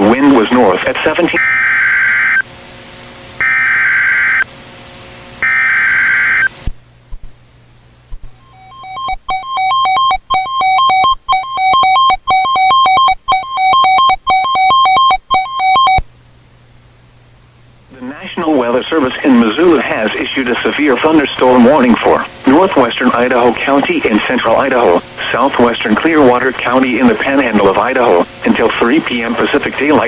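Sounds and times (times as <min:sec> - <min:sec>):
short buzzing data bursts: 0:08.3 - 0:16.0
two-pitch alert tone: 0:08.4 - 0:16.0.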